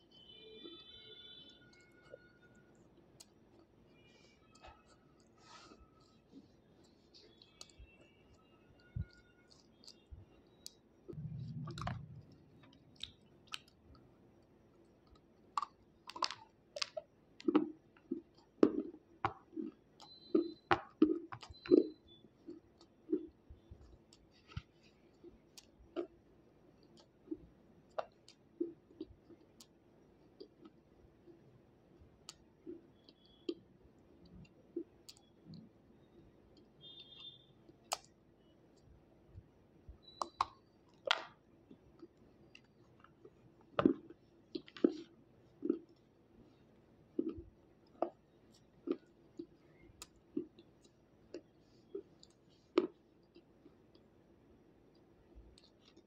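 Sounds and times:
slate being chewed: 0:00.6 - 0:26.2, 0:40.0 - 0:46.1, 0:47.1 - 0:54.1
low rumble: 0:11.2 - 0:12.6.

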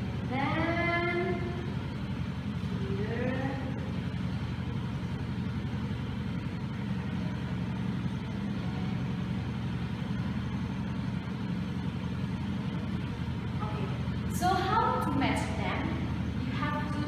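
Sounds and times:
low machinery hum: 0:00.0 - 0:17.0.

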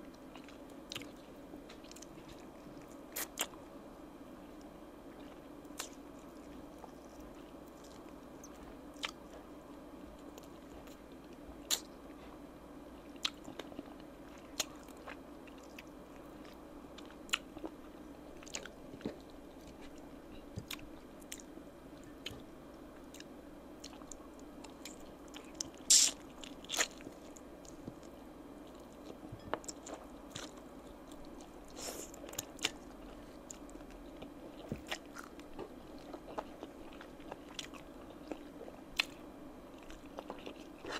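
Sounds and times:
chewing and biting: 0:13.1 - 0:17.8, 0:23.1 - 0:39.2, 0:39.8 - 0:40.9.

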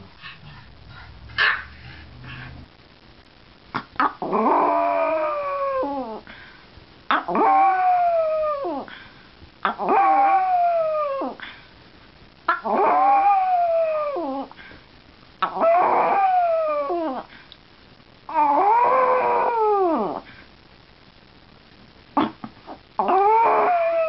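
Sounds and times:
dog howling: 0:04.2 - 0:06.2, 0:07.1 - 0:08.9, 0:09.6 - 0:11.4, 0:12.5 - 0:14.5, 0:15.4 - 0:17.3, 0:18.3 - 0:20.2, 0:23.0 - 0:24.0.

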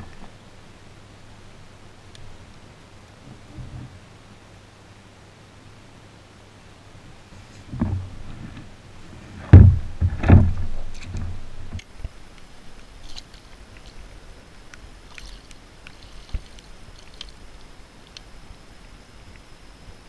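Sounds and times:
landing net knocks and bumps: 0:09.4 - 0:11.4.

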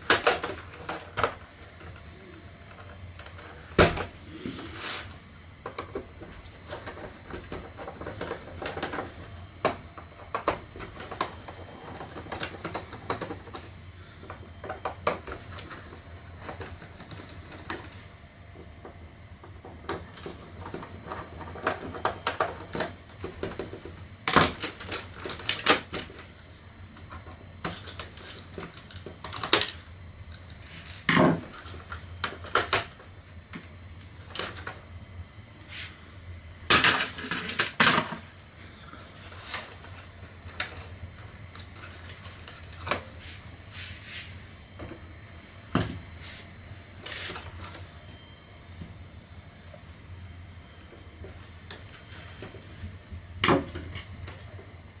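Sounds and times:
plastic parts clattering: 0:00.0 - 0:02.0, 0:05.6 - 0:18.0, 0:27.2 - 0:33.0, 0:36.7 - 0:38.3.

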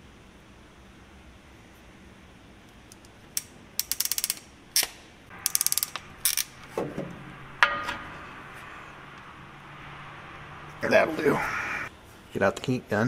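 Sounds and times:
wire crimper ratchet clicks: 0:02.7 - 0:06.6.

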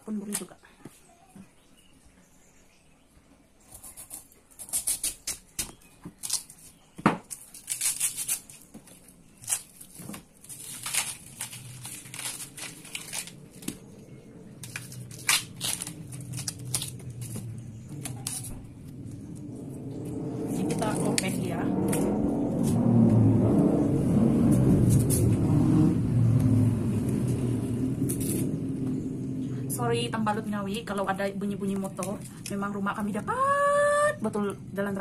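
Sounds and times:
plant stalk being peeled and torn: 0:03.7 - 0:14.0, 0:14.6 - 0:19.4, 0:24.4 - 0:25.6, 0:26.3 - 0:28.8
low rumble: 0:11.3 - 0:35.0.

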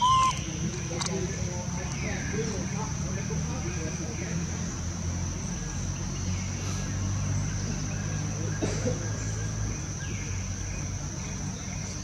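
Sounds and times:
baby monkey squeaking: 0:00.0 - 0:00.5
high-pitched insect drone: 0:00.0 - 0:00.6.

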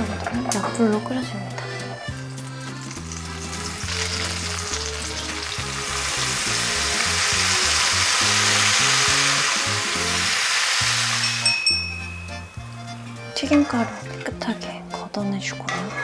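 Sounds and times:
quiet background music: 0:00.0 - 0:16.0
food sizzling in hot oil: 0:01.7 - 0:12.9.

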